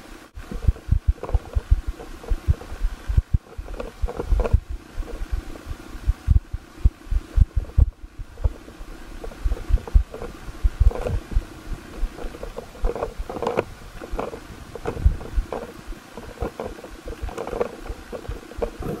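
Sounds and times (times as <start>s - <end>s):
muffled water bursts: 0.0s - 19.0s.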